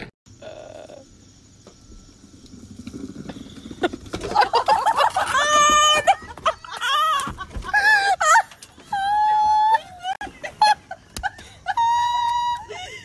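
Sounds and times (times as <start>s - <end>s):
plastic wheels rolling over bricks: 1.6s - 10.2s
high-pitched voice screaming: 5.3s - 6.2s.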